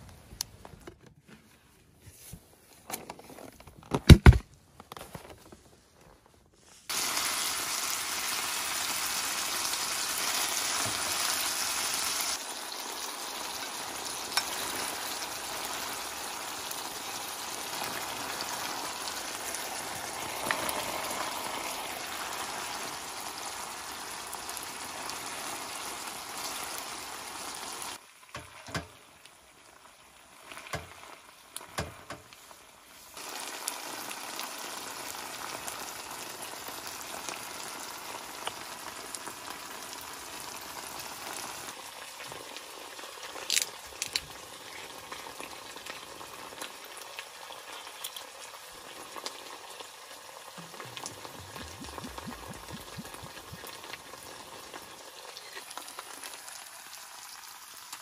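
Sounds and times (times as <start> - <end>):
camping gear clicks and knock: 2.9 - 5.6
meat sizzling in pot: 6.9 - 58.0.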